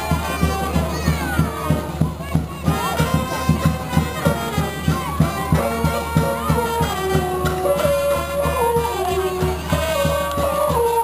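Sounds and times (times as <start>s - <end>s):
lively music with quick beat: 0.0s - 11.0s.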